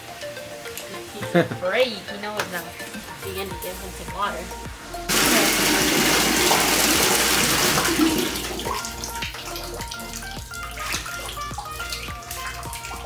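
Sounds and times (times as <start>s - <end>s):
background music with steady beat: 0.0s - 13.0s
water running into bathtub: 5.1s - 13.0s.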